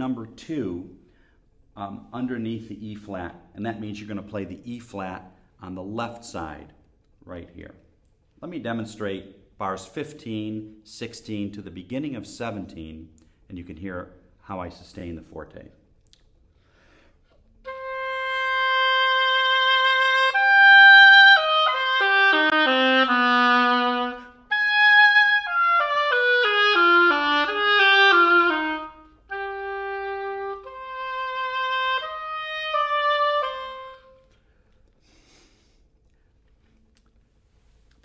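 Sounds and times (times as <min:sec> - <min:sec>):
solo oboe playing: 0:17.4 - 0:34.6.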